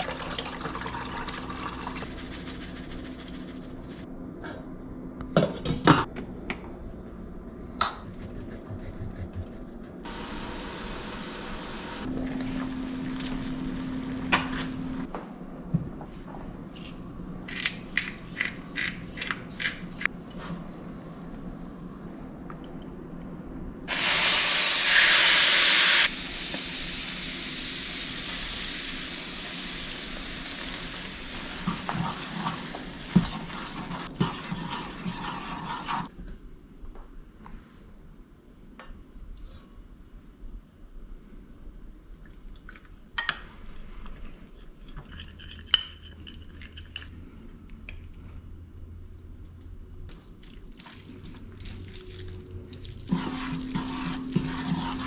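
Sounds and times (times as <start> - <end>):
water pouring: 0.0 - 3.9, 50.3 - 55.0.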